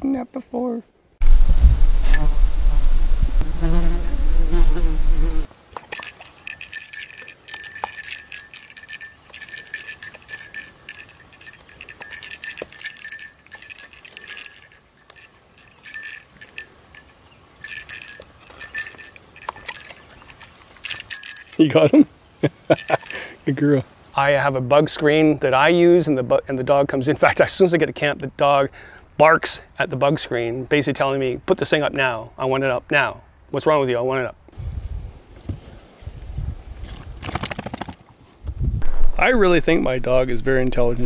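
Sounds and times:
collar bell jingling: 0:05.8 - 0:21.8, 0:22.7 - 0:23.4.

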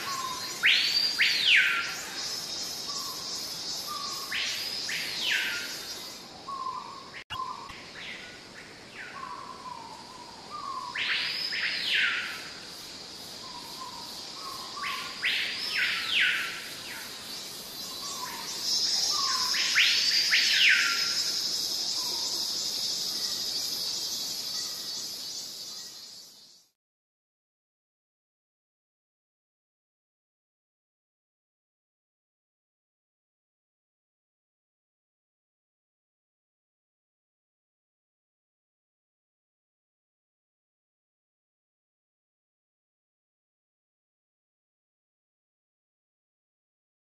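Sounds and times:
high insect drone: 0:00.0 - 0:07.0, 0:07.8 - 0:26.7.

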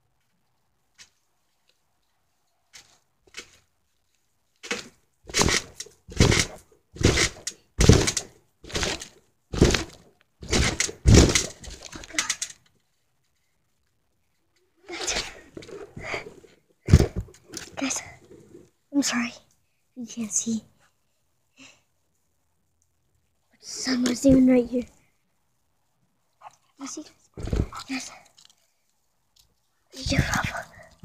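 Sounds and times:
trampoline bouncing thumps: 0:04.7 - 0:12.3, 0:15.0 - 0:17.9, 0:24.1 - 0:24.6, 0:27.4 - 0:27.9.

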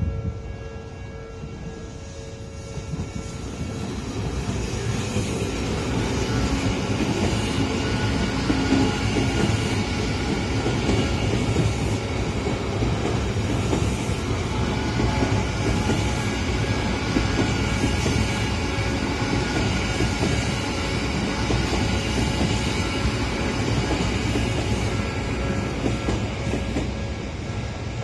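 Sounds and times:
crossing warning bell ringing: 0:00.0 - 0:11.7
electric train rumbling past: 0:00.0 - 0:28.0.

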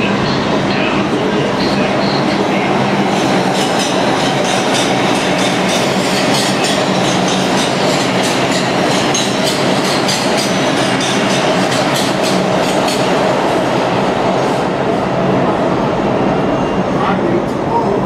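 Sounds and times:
train rumbling past: 0:00.0 - 0:18.0.

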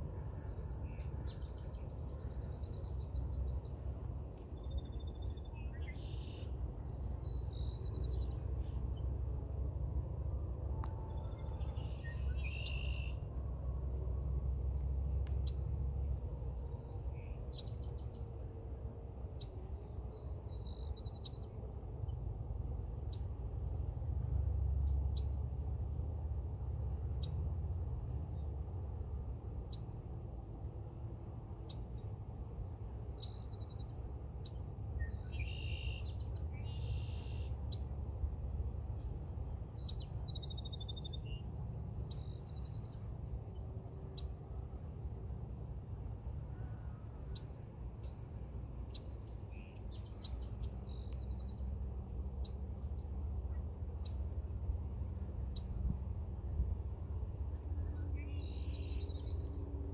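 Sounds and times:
insect trill: 0:21.7 - 0:59.9.

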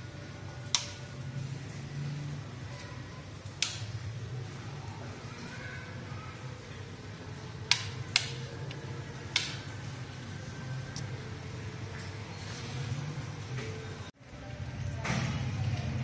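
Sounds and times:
plastic wall switch clicks: 0:00.7 - 0:01.0, 0:03.6 - 0:03.8, 0:07.7 - 0:08.4, 0:09.3 - 0:09.6.

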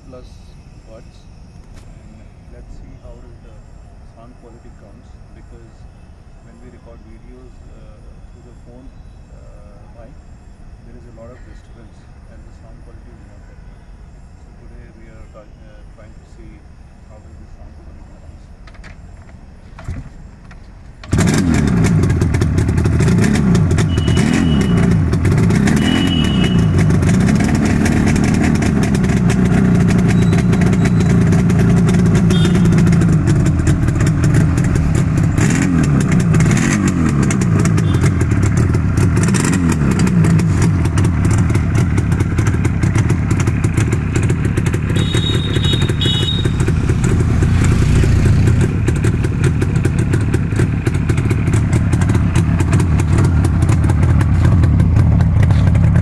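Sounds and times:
two-stroke motorcycle engine revving: 0:21.0 - 0:56.0.

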